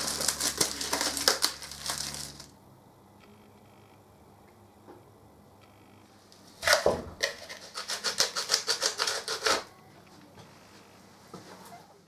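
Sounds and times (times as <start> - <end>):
rapid scraping strokes: 7.2 - 9.7.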